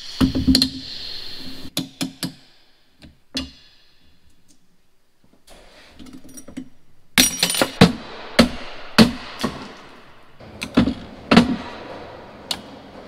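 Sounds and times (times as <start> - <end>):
metal parts clanking: 6.0 - 7.9.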